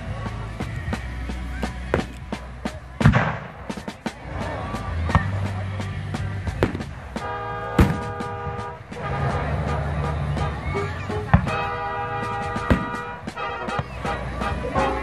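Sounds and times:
fireworks bangs and crackles: 0:00.0 - 0:15.0
music: 0:00.0 - 0:15.0.

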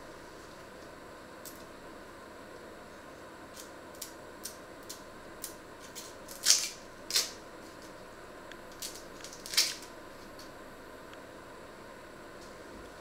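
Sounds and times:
onion skin crackling and tearing: 0:03.6 - 0:07.9, 0:08.7 - 0:10.4.

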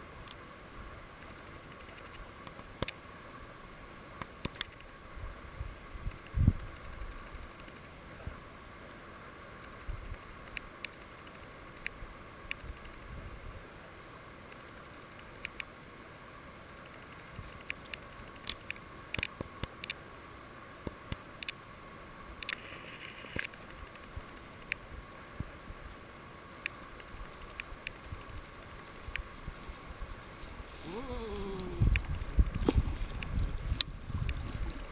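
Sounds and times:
steady hiss: 0:00.0 - 0:34.9.

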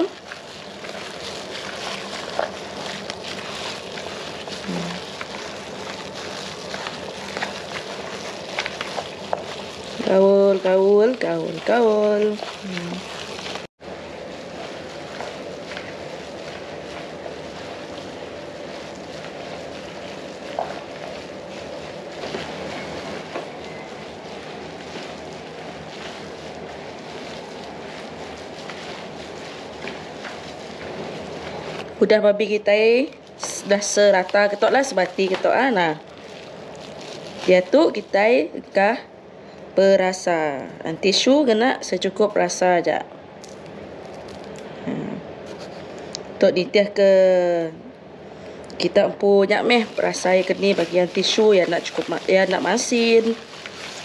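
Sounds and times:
plastic glove clicks and crinkles: 0:00.0 - 0:32.0, 0:33.1 - 0:38.1, 0:43.4 - 0:44.7, 0:49.6 - 0:54.0
wet squishing of minced filling: 0:00.0 - 0:38.5, 0:43.4 - 0:46.2, 0:48.4 - 0:54.0.

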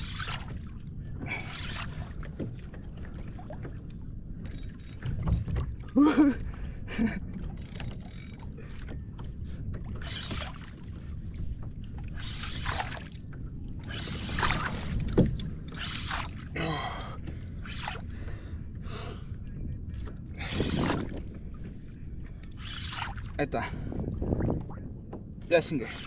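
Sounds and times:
water sloshing around kayak: 0:00.0 - 0:26.0
wind buffeting microphone: 0:17.1 - 0:22.7, 0:23.4 - 0:26.0.

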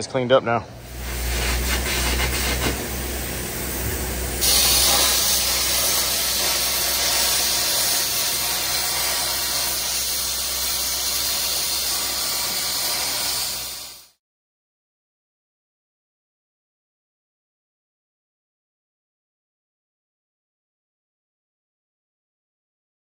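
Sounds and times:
low rumble: 0:00.6 - 0:04.4
metal cutting hiss: 0:00.8 - 0:14.2.

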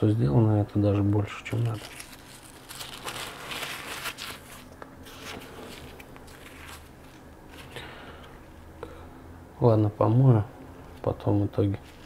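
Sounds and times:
scratchy handling rustle: 0:01.5 - 0:07.8, 0:11.0 - 0:12.0.

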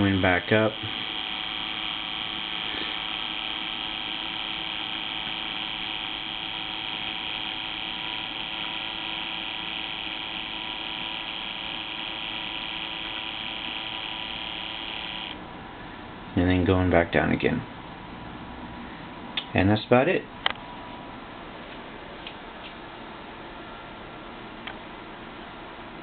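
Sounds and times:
electric water pump humming: 0:00.0 - 0:15.5.

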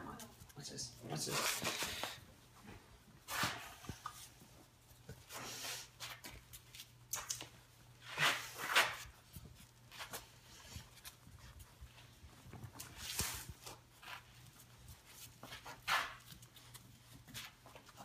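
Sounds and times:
puppy paws scuffling on tile: 0:00.0 - 0:18.0.

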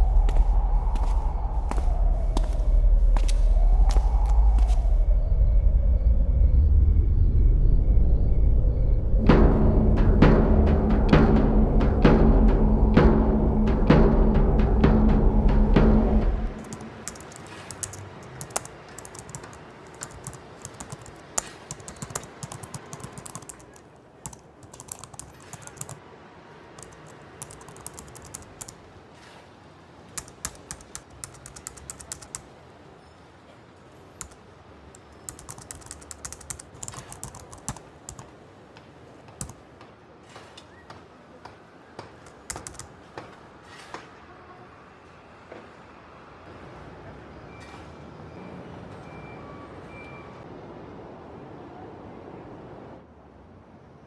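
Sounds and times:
laptop keyboard typing: 0:16.6 - 0:26.0, 0:26.8 - 0:28.8, 0:30.2 - 0:32.4, 0:34.2 - 0:38.3, 0:39.3 - 0:39.6, 0:42.2 - 0:42.9.

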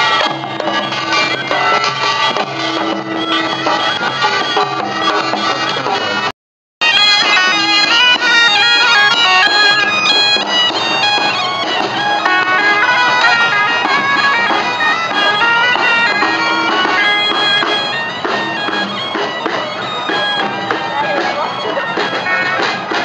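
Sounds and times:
folk melody on wind pipes: 0:00.0 - 0:23.0.

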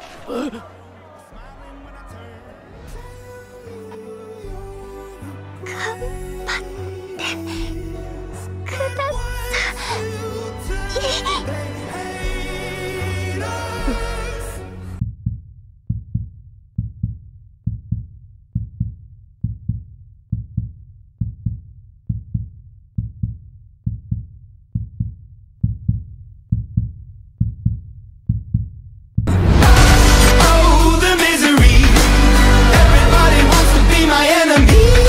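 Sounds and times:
heartbeat thumps: 0:15.0 - 0:30.2
loud music: 0:29.3 - 0:35.0.

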